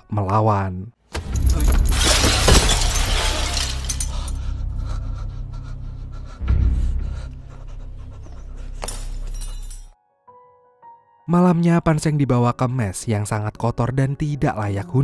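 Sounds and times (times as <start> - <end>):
loud crash: 1.4 - 4.1
steady low drone: 3.9 - 9.8.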